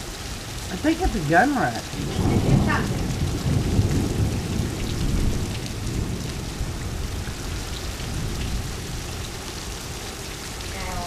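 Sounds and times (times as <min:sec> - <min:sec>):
rain falling steadily: 0:00.0 - 0:11.0
low rumble of thunder: 0:01.8 - 0:10.0.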